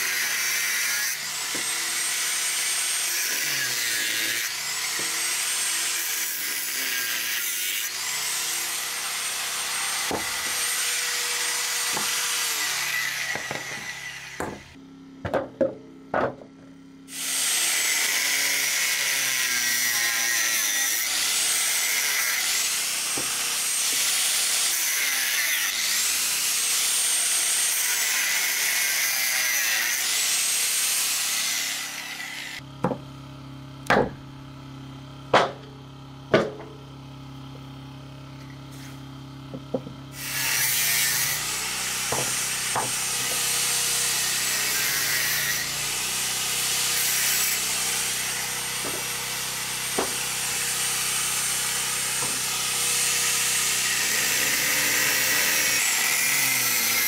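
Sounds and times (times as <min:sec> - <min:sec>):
angle grinder cutting bone: 0:00.0 - 0:15.4, 0:17.1 - 0:33.0, 0:35.3 - 0:36.8, 0:38.4 - 0:57.0
sharp knocks: 0:50.0 - 0:50.2.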